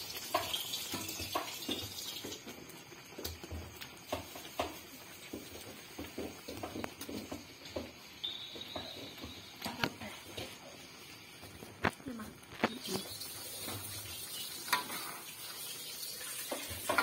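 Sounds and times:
spatula tapping wok: 0:00.0 - 0:10.6, 0:16.4 - 0:17.0
high steady tone: 0:08.2 - 0:10.0.

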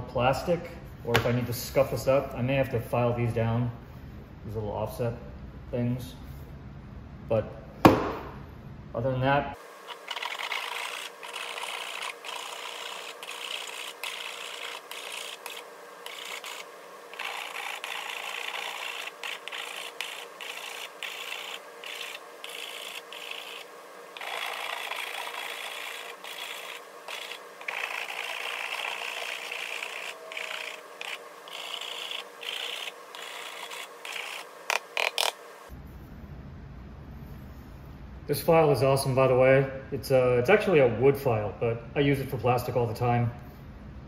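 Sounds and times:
sharp knocks: 0:07.9 - 0:08.4
rasp filing plastic: 0:09.9 - 0:35.4.

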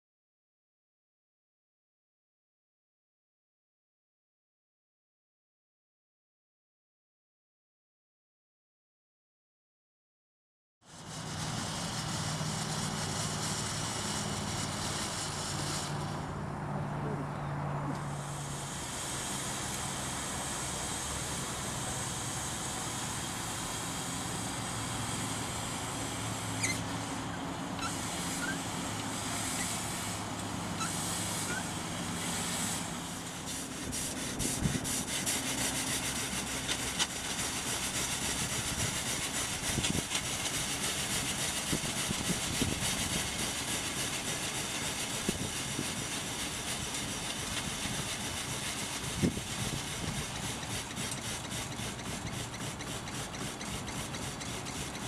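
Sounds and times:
steam hissing: 0:10.9 - 0:16.4, 0:18.0 - 0:55.0.

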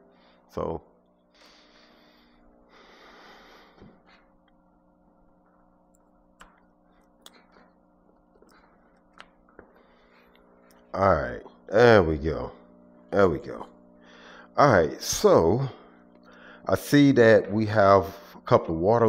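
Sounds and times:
faint electrical hum: 0:00.0 - 0:19.0
soft breath: 0:01.3 - 0:04.3, 0:09.6 - 0:10.7.

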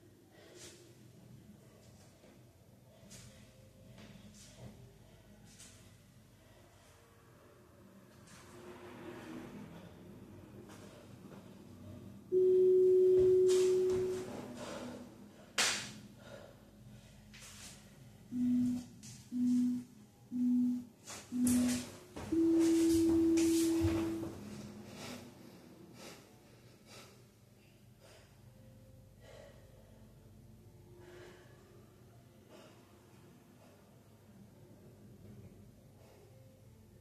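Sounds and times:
interval timer beeping: 0:12.3 - 0:14.3, 0:18.3 - 0:24.3
hard breathing: 0:14.3 - 0:18.7, 0:24.6 - 0:30.2.

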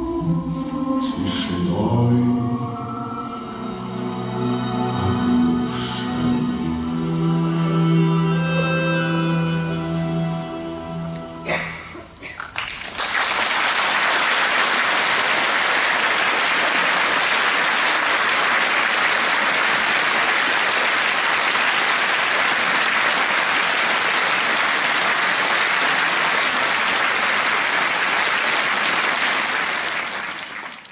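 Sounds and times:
audience applauding: 0:12.2 - 0:30.9.

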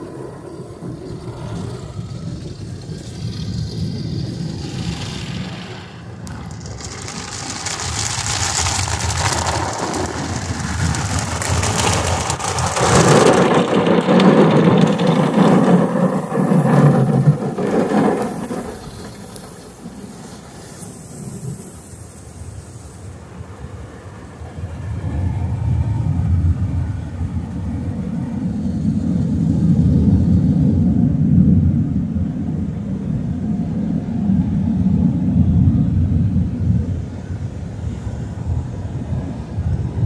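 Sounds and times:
wash strips sweeping over car: 0:04.4 - 0:22.1
water spraying onto windshield: 0:06.2 - 0:23.0.

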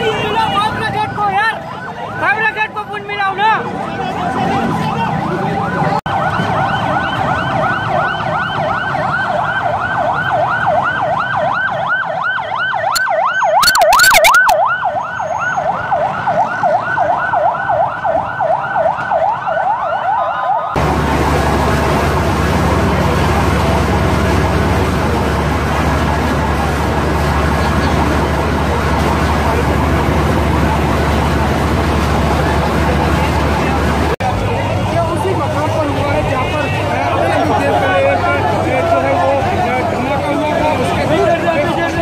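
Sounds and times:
emergency siren wailing: 0:00.0 - 0:42.0.

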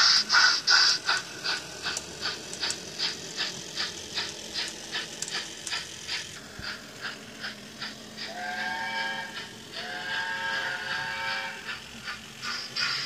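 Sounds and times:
steam locomotive exhaust chuffs: 0:00.0 - 0:13.0.

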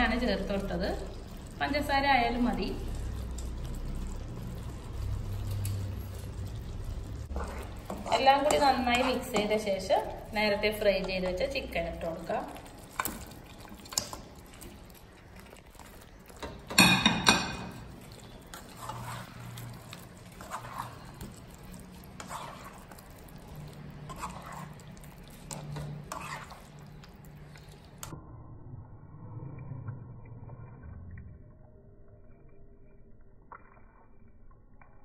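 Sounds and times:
spatula stirring in wok: 0:00.0 - 0:28.1
soft scraping strokes: 0:18.2 - 0:27.9.

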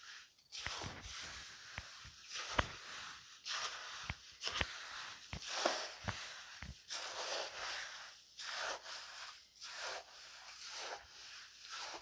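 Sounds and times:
gritty scraping swishes: 0:00.0 - 0:12.0.

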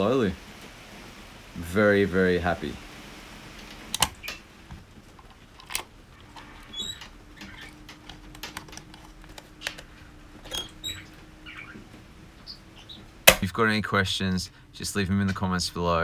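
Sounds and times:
tiny squeaks: 0:06.1 - 0:09.8, 0:10.4 - 0:13.1.

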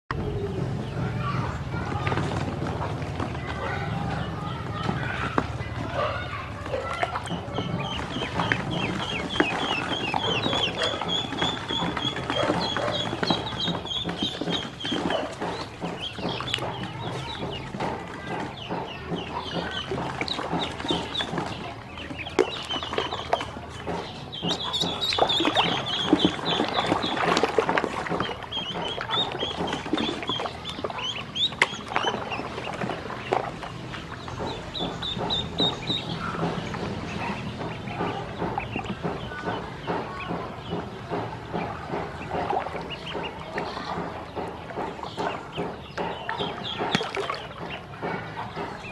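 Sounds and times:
ducklings peeping: 0:00.1 - 0:48.9.

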